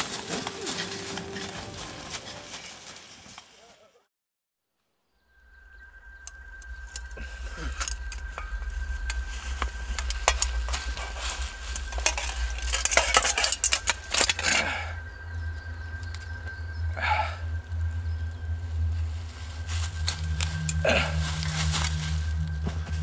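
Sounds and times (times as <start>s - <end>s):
dry leaves crackling and rustling: 0.0s - 4.0s, 6.4s - 16.4s, 17.4s - 23.0s
low steady rumble: 5.5s - 23.0s.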